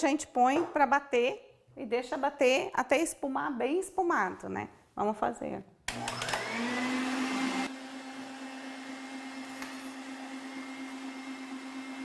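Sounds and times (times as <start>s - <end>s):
stand mixer motor whirring: 5.9s - 12.0s.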